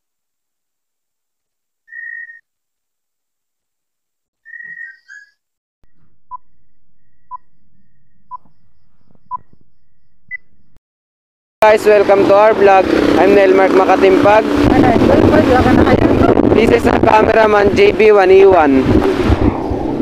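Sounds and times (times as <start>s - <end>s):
high whistle-like chirps: 1.9s - 2.4s, 4.4s - 5.4s
short beeps: 5.9s - 10.8s.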